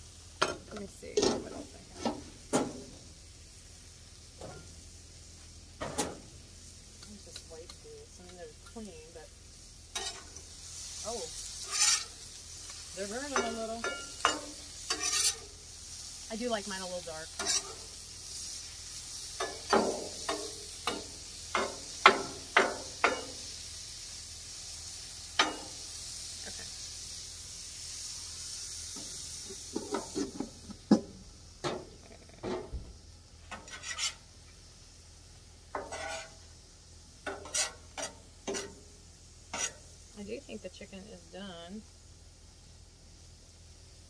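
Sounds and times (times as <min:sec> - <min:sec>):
food sizzling on griddle: 0:00.0 - 0:44.0
metal spatulas scraping griddle: 0:10.0 - 0:10.4, 0:11.6 - 0:12.2, 0:13.2 - 0:15.5, 0:17.3 - 0:18.0, 0:33.5 - 0:34.3, 0:35.7 - 0:36.4, 0:37.3 - 0:38.8, 0:39.5 - 0:39.9.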